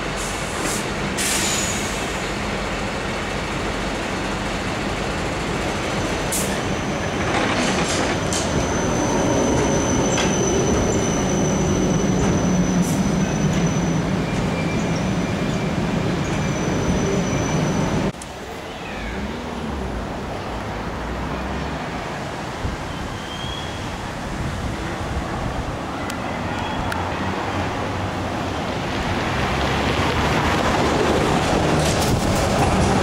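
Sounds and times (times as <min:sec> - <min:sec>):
street noise: 0:00.0 - 0:33.0
tram rolling past: 0:00.0 - 0:33.0
high wheel squeal: 0:06.4 - 0:18.1, 0:22.9 - 0:24.0.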